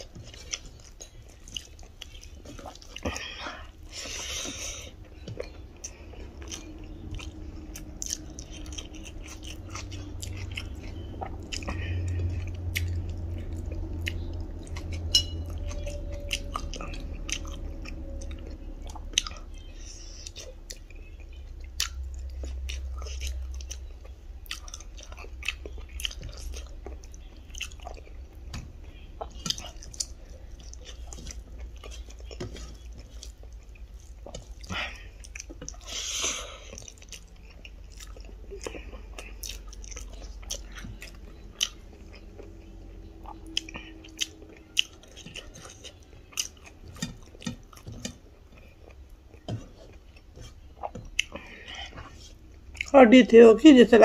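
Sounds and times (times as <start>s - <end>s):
close-up chewing: 0.0s - 53.0s.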